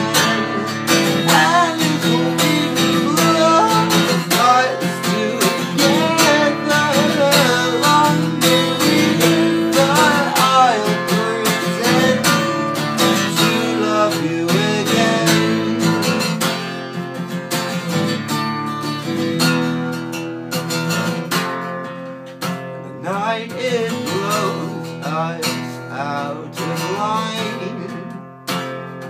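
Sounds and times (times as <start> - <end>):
man singing: 0.0 - 16.6, 22.7 - 28.3
acoustic guitar strumming: 0.0 - 29.0.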